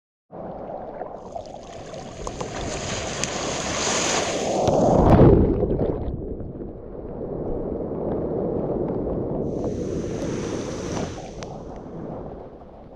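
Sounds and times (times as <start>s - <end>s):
ocean wave breaking: 1.4s - 5.3s, 9.5s - 12.7s
whitewater rushing over microphone: 1.6s - 5.4s, 9.5s - 12.7s.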